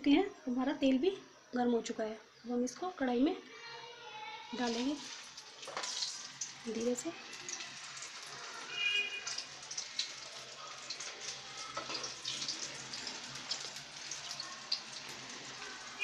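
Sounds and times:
food sizzling in hot oil: 4.5s - 16.0s.

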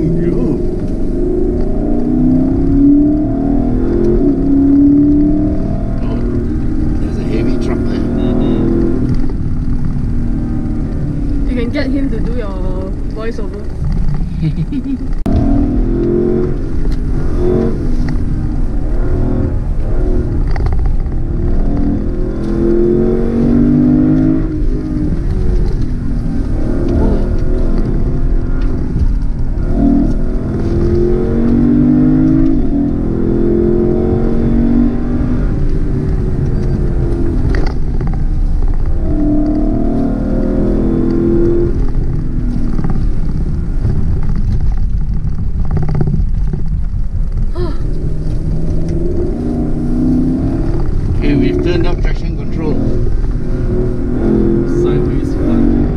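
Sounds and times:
car engine accelerating: 0.0s - 55.9s
road noise rumble: 0.0s - 55.9s.

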